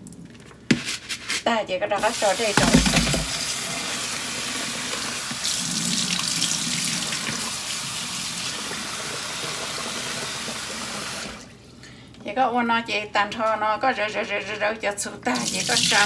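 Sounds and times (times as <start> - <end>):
tap running into a plastic bowl: 2.6 - 3.4.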